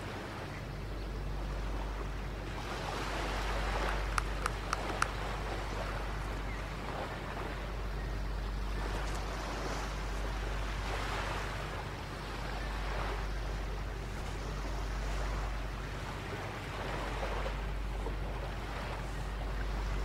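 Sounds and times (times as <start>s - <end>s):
low surf rumble: 0.0s - 20.0s
waves breaking on shore: 0.0s - 20.0s.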